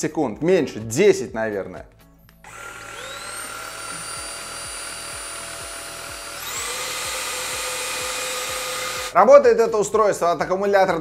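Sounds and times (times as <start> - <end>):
vacuum motor whining: 2.5 - 9.2.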